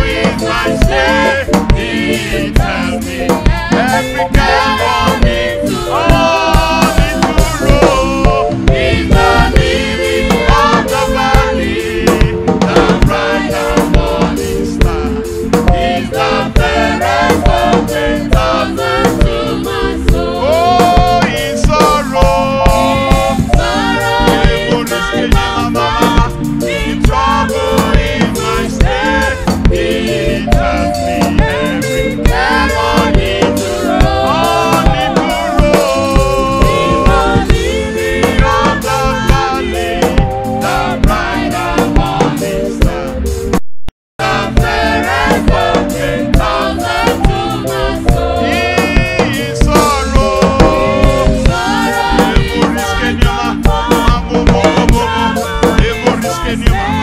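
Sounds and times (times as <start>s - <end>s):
man singing lead: 0.0s - 43.2s, 47.8s - 57.0s
band playing: 0.0s - 43.6s, 44.2s - 57.0s
choir singing: 0.0s - 43.6s, 44.2s - 57.0s
drum kit beat: 0.0s - 43.6s, 44.2s - 57.0s
man singing into microphone: 2.3s - 9.3s, 20.4s - 26.3s, 34.4s - 37.5s, 48.5s - 57.0s.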